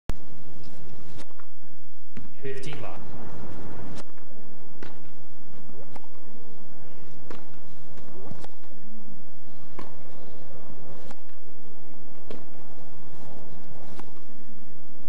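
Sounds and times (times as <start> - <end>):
tennis racquets hitting ball: 3.5 - 8.8, 9.5 - 14.3.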